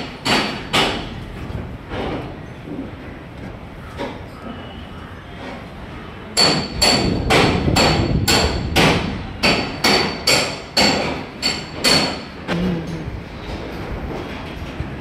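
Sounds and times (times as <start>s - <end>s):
hammer blows on metal: 6.4s - 12.3s.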